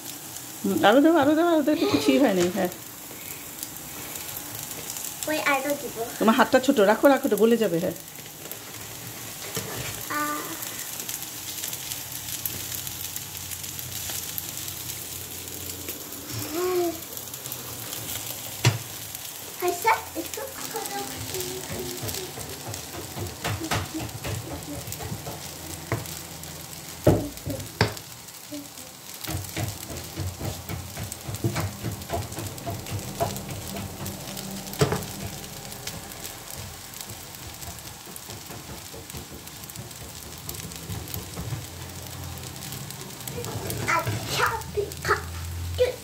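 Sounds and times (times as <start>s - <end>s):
pasta sizzling in a frying pan: 0.0s - 46.0s
spatula scraping a pan: 8.4s - 11.7s
spatula knocking on pan: 21.4s - 26.2s, 27.0s - 28.0s, 29.2s - 42.0s.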